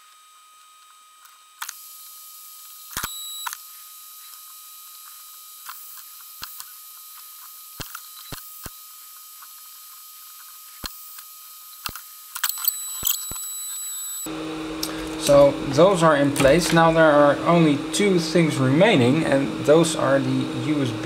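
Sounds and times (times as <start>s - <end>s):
solder clicks and crackles: 4.3s - 15.0s.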